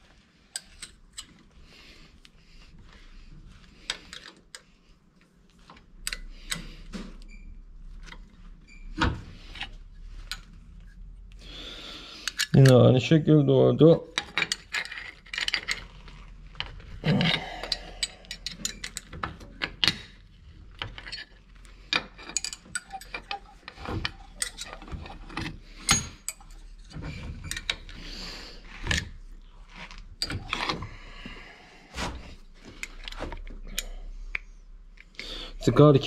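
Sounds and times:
small metal parts clicking and clattering: 0:14.1 - 0:27.9.

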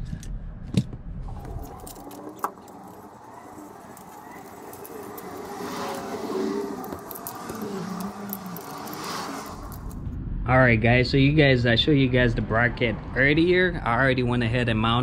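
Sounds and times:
car passing: 0:01.2 - 0:10.1
handling noise of metal bracket: 0:01.3 - 0:10.0
metal clink: 0:01.4 - 0:10.0.

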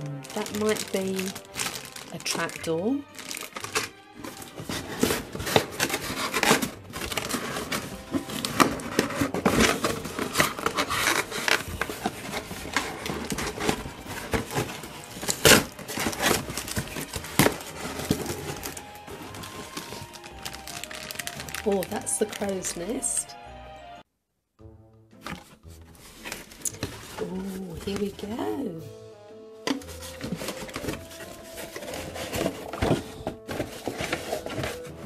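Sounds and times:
cardboard rustling and scraping: 0:00.0 - 0:23.0, 0:25.2 - 0:28.6, 0:29.7 - 0:35.0
plastic bags crinkling: 0:00.0 - 0:23.3, 0:25.3 - 0:28.6, 0:29.7 - 0:35.0.

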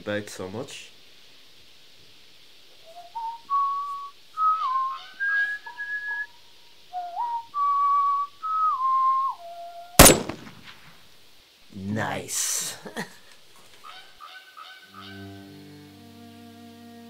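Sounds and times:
person whistling a slow tune: 0:02.8 - 0:06.3, 0:06.9 - 0:10.0.

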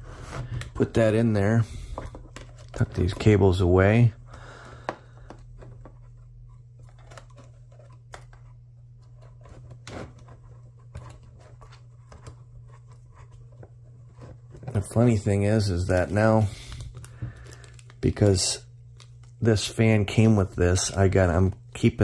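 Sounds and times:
plastic clicks and rustles: 0:04.6 - 0:15.2.

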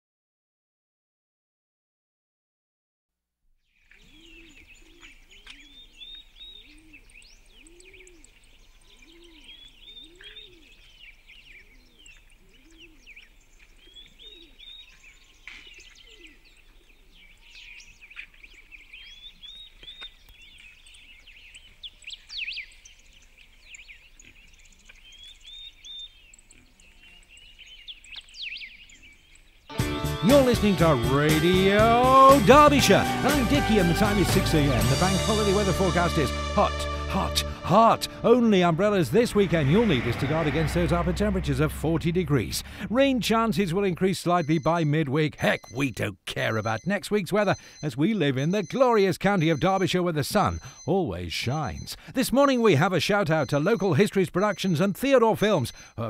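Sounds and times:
songbird chirping: 0:03.6 - 0:56.0
pigeon cooing: 0:06.5 - 0:07.0, 0:07.6 - 0:08.3, 0:09.0 - 0:10.8, 0:11.6 - 0:13.1, 0:14.1 - 0:14.7.

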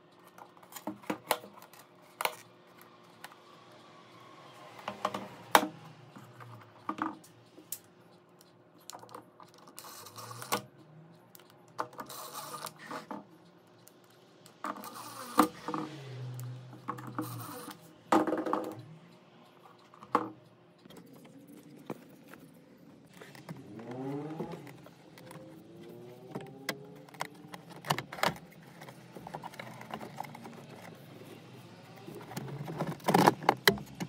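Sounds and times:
plastic parts clicking and scraping: 0:00.0 - 0:03.4, 0:04.7 - 0:34.0.

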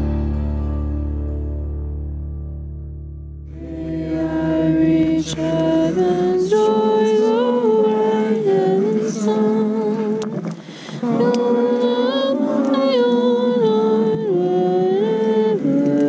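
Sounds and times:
background music chord: 0:00.0 - 0:07.9
group singing in unison: 0:03.6 - 0:16.0.

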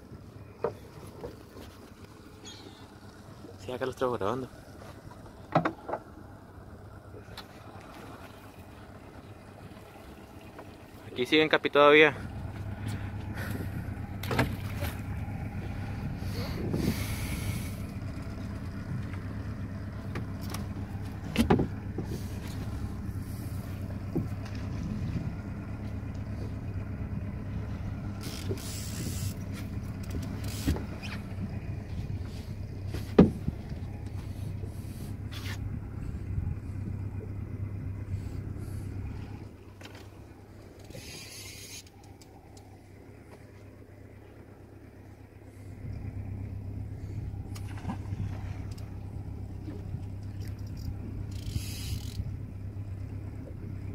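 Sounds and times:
boat motor humming: 0:00.0 - 0:53.9
knocks on boat: 0:05.5 - 0:06.1, 0:21.2 - 0:22.1, 0:33.0 - 0:33.8.

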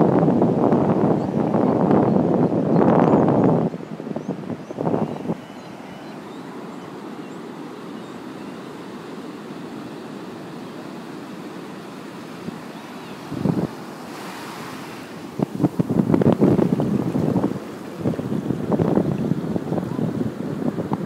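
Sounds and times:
wind on microphone: 0:00.0 - 0:05.9, 0:12.4 - 0:21.0
ocean surf washing onto beach: 0:03.4 - 0:21.0.

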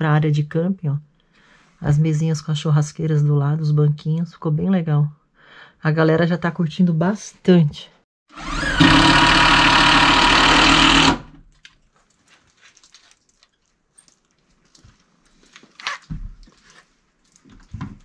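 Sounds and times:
cordless drill running: 0:08.3 - 0:11.4.

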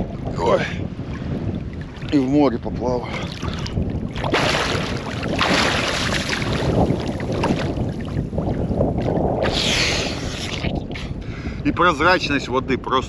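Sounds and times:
wind rumbling on microphone: 0:00.0 - 0:13.0
water splashing from swimmer: 0:03.0 - 0:10.8.

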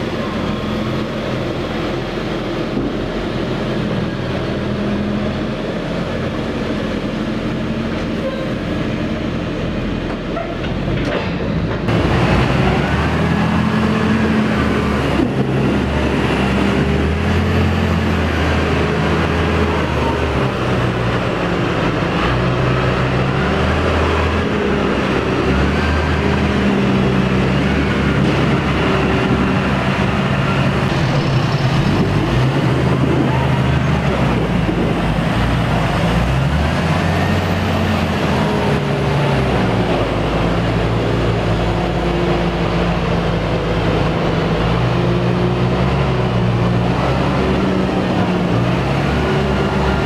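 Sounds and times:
diesel tractor engines working: 0:00.0 - 0:50.0.

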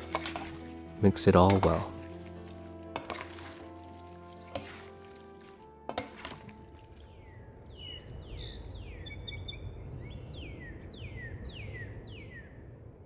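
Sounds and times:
bird chirping: 0:07.0 - 0:12.6.

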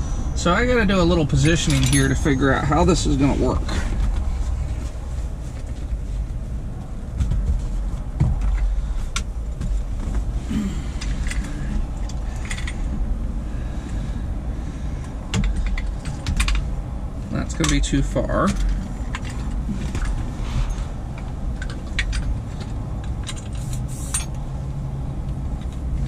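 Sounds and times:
steady low rumble: 0:00.0 - 0:26.0
metal brackets clinking and knocking: 0:01.2 - 0:03.2.

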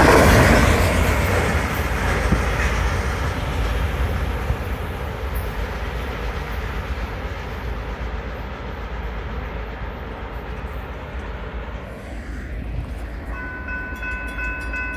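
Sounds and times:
freight train rumbling: 0:00.0 - 0:14.9
steady high tone: 0:13.2 - 0:14.9.

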